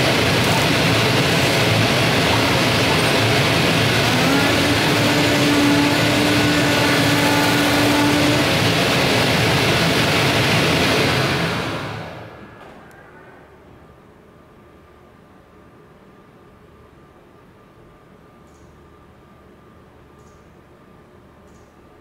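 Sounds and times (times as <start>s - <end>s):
loud rushing machine noise: 0.0s - 13.5s.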